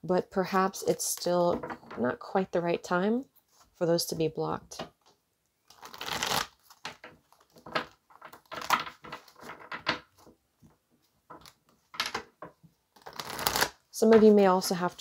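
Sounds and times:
cards being shuffled: 0:05.7 - 0:10.3, 0:13.0 - 0:14.2.

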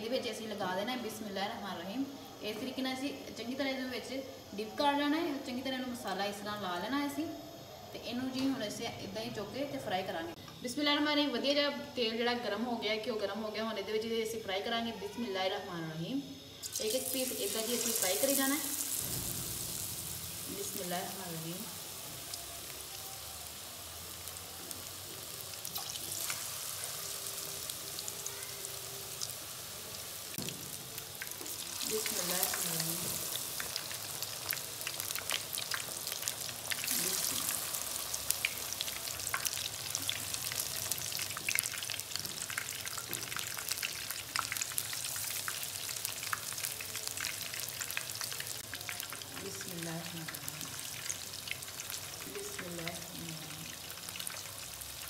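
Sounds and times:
fish deep-frying with crackling pops: 0:16.4 - 0:55.0.

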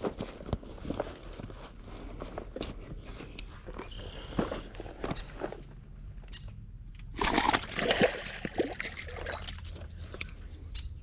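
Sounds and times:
water splashing on rocky shore: 0:07.2 - 0:09.2.

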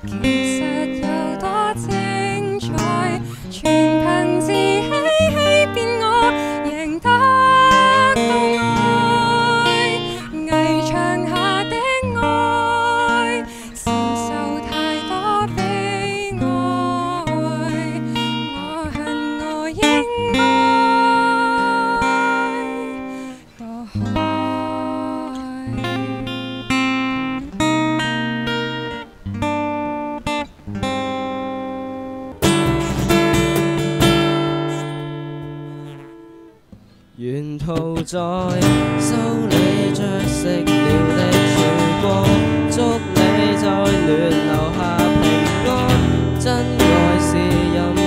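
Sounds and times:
woman singing pop song: 0:00.0 - 0:27.7, 0:37.6 - 0:48.0
acoustic guitar: 0:00.0 - 0:48.0.

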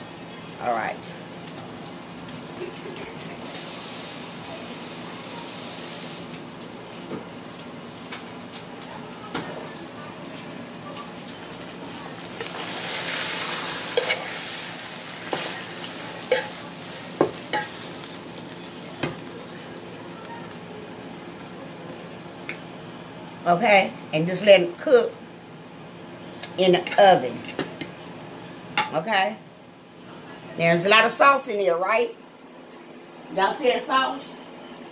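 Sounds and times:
sizzling hiss: 0:03.4 - 0:06.4, 0:11.5 - 0:20.9.

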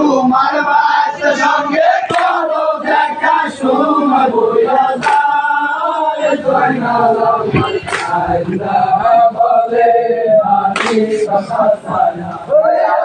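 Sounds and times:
men chanting in unison: 0:00.0 - 0:13.0.

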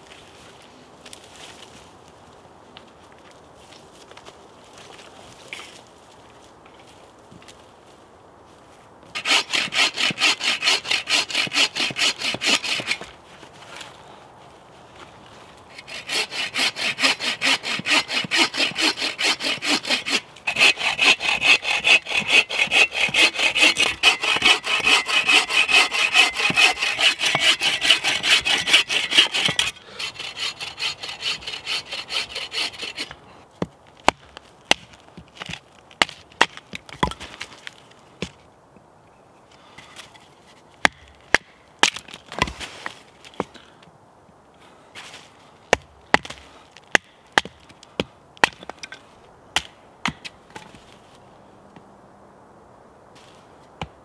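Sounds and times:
hand saw cutting branch: 0:09.1 - 0:13.1, 0:15.7 - 0:33.2.

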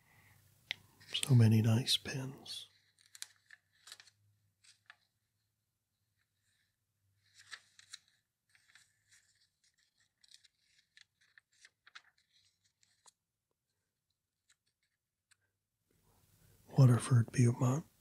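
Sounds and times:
paper pages flipping: 0:00.7 - 0:01.4, 0:02.0 - 0:15.5.

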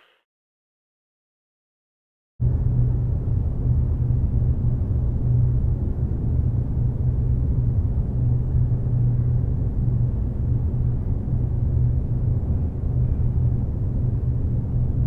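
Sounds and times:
low rumble with droning hum: 0:02.4 - 0:15.0.

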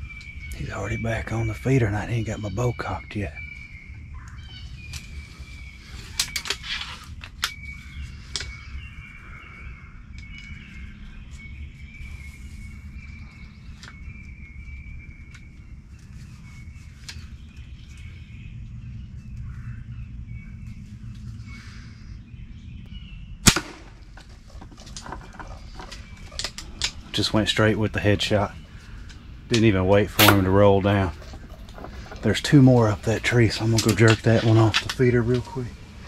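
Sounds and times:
low outdoor rumble: 0:00.0 - 0:36.0.

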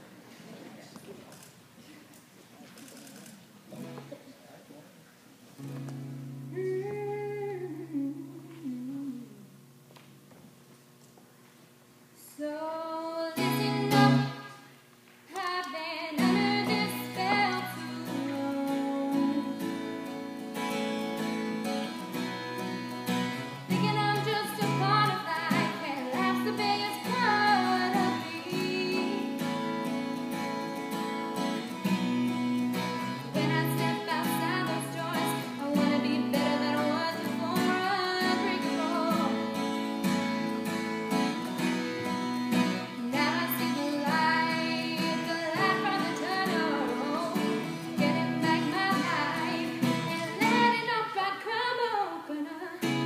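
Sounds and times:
acoustic guitar: 0:00.0 - 0:53.0
girl singing slow song: 0:05.6 - 0:09.8, 0:12.2 - 0:21.8, 0:23.3 - 0:30.2, 0:32.5 - 0:41.6, 0:42.5 - 0:53.0.

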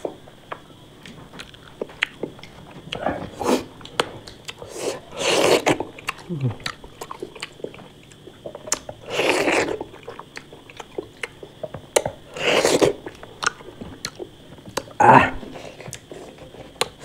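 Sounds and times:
wet chewing and mouth smacks: 0:00.5 - 0:03.0, 0:05.5 - 0:15.0
loud wet slurping noises: 0:04.6 - 0:05.9, 0:09.0 - 0:10.2, 0:12.3 - 0:13.1.

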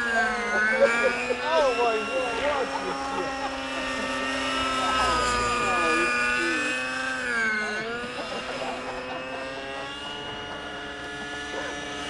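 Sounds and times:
model helicopters whining overhead: 0:00.0 - 0:12.0.

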